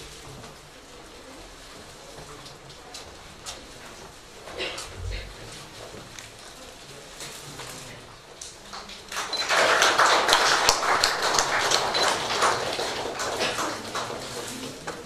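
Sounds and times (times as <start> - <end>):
audience applause: 8.8 - 14.9.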